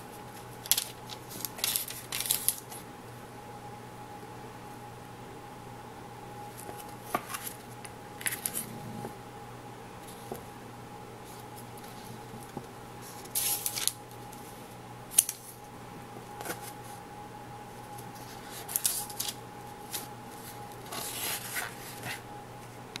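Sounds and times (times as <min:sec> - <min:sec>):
faint steady hum: 0:00.0 - 0:23.0
paper rustling and crinkling: 0:00.3 - 0:02.8, 0:06.5 - 0:08.7, 0:11.2 - 0:15.6, 0:16.4 - 0:16.9, 0:17.8 - 0:22.2
sharp paper snap: 0:15.1 - 0:15.4.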